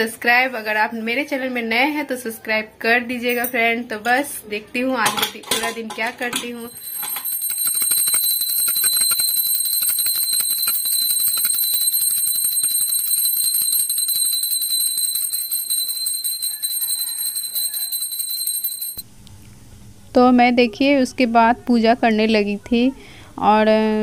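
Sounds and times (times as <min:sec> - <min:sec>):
hand bell rung rapidly: 0:06.7 - 0:19.0.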